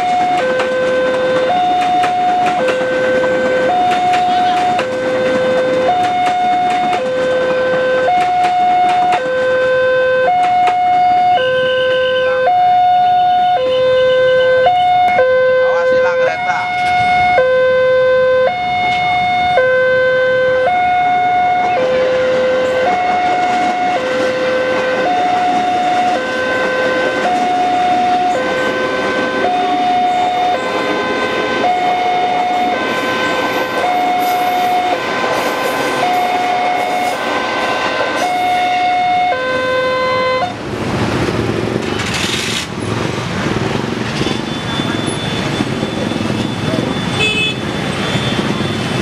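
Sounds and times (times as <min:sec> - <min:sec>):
level crossing two-tone alarm: 0:00.0 - 0:40.6, 0:44.4 - 0:49.0
train rushing over rails: 0:00.0 - 0:49.0.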